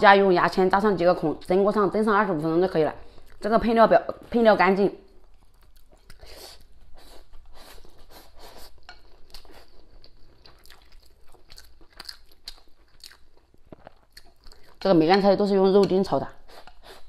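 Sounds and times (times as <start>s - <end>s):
wet chewing and lip smacks: 5.2s - 8.2s, 8.8s - 14.9s.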